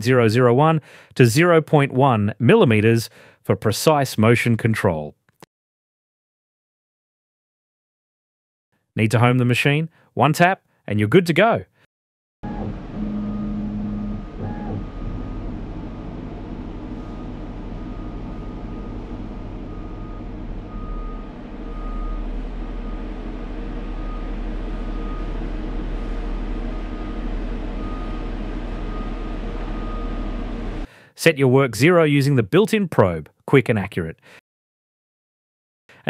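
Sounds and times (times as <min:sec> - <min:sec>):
router drive motors humming: 0:12.4 - 0:30.9.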